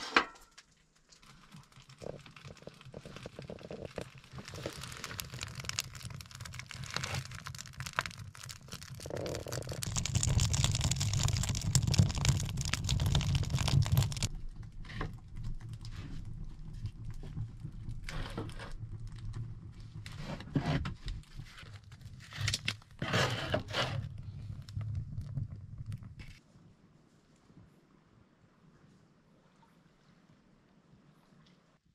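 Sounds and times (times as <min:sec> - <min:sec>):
wood fire crackling: 0:00.3 - 0:26.5
wood and bark rustling: 0:01.8 - 0:14.3
wood snapping and knocking: 0:03.6 - 0:14.3.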